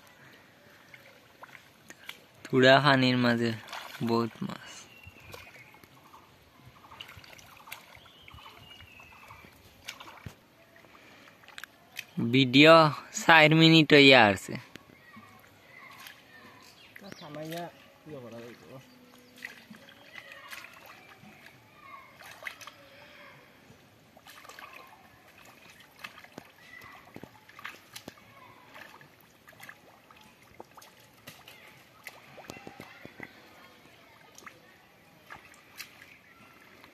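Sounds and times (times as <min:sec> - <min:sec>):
hands splashing in muddy water: 0:00.0 - 0:12.2, 0:15.2 - 0:17.8, 0:18.5 - 0:23.0, 0:24.1 - 0:36.9.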